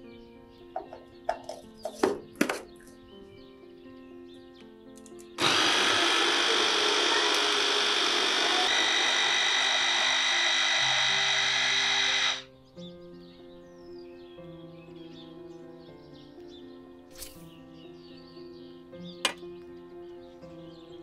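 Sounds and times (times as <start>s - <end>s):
mini chopper motor running: 5.4s - 12.5s.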